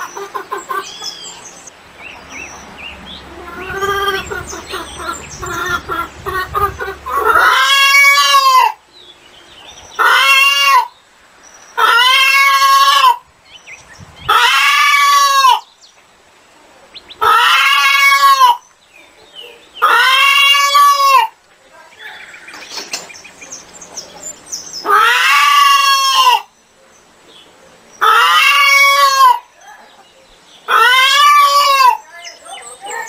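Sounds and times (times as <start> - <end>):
chicken drawn-out calls: 0.0 - 1.5, 2.1 - 8.8, 10.0 - 11.0, 11.8 - 13.3, 14.3 - 15.7, 17.2 - 18.7, 19.4 - 21.4, 24.8 - 26.6, 28.0 - 33.0
chickens clucking: 0.0 - 8.8, 28.0 - 33.0.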